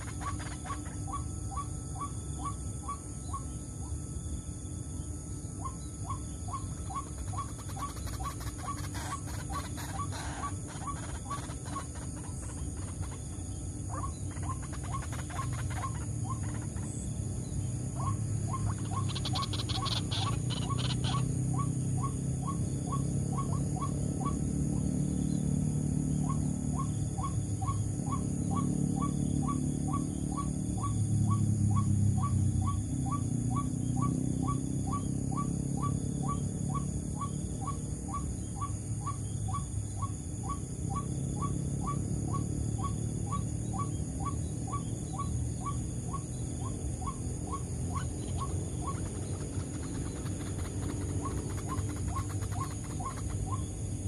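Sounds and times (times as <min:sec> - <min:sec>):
waterhen calling: 0:00.0 - 0:03.4, 0:05.6 - 0:16.9, 0:18.0 - 0:22.2, 0:41.9 - 0:53.7
steady low rumble: 0:00.0 - 0:25.4, 0:36.2 - 0:54.0.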